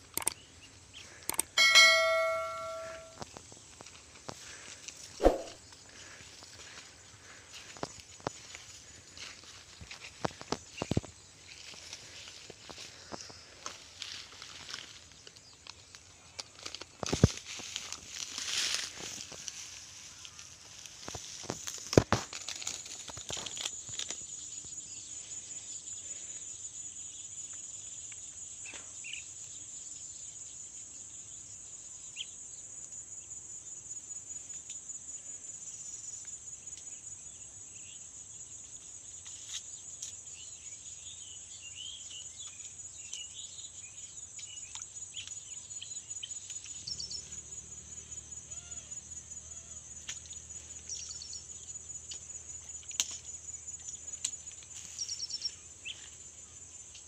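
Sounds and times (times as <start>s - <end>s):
insects trilling: 0.0s - 57.0s
bird chirps: 1.6s - 3.2s
sharp knock: 5.2s - 5.6s.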